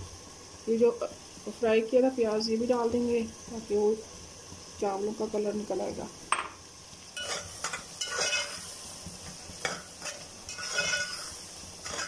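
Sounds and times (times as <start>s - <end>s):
food sizzling in ghee: 0.0s - 12.0s
spoon squeaking on pot: 7.2s - 8.6s, 10.0s - 12.0s
metal spoon scraping a pot: 7.2s - 8.7s, 9.6s - 12.0s.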